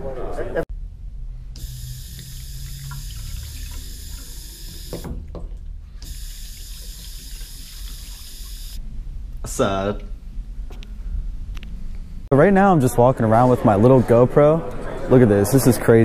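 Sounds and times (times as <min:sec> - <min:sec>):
faucet water running into sink: 0:01.6 - 0:05.1, 0:06.0 - 0:08.8
hands washing under water: 0:02.0 - 0:05.0, 0:06.1 - 0:08.8.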